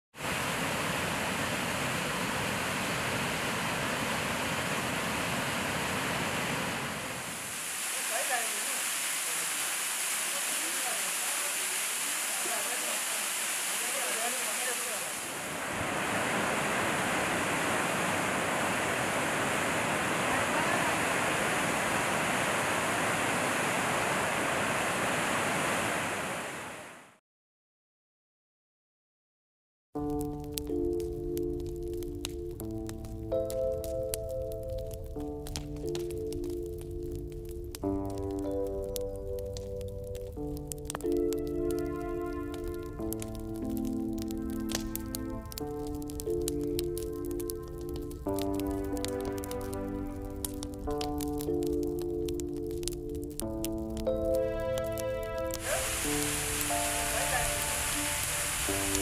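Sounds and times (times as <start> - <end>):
waterfall rushing: 0.2 - 27.0, 54.4 - 59.0.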